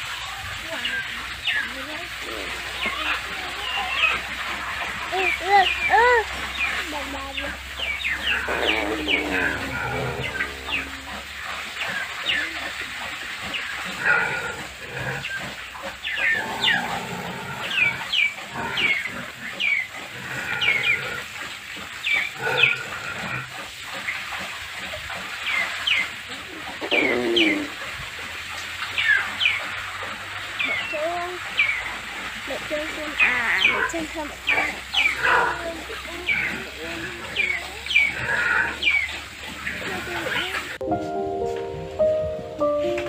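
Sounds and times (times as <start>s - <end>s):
lower animal calls: 26.8s - 27.8s.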